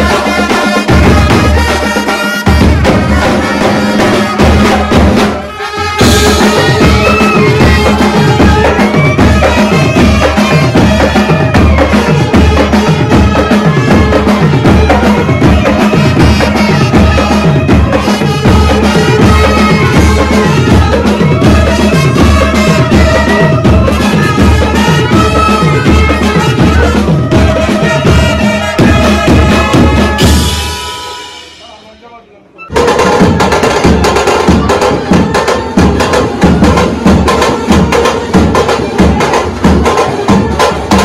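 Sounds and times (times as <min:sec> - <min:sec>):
bass drums and cymbals beat: 0:00.0 - 0:32.1
brass band playing: 0:00.0 - 0:41.0.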